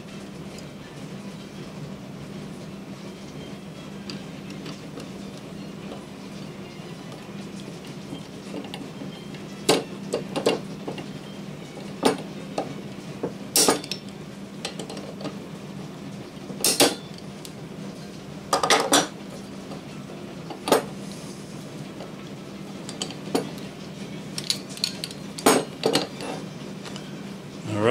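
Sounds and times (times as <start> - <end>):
metal parts clinking and knocking: 24.4 - 26.2.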